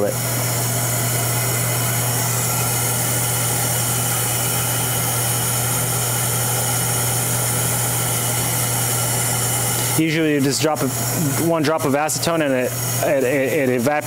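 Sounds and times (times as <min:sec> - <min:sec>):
shop machinery droning: 0:00.0 - 0:14.0.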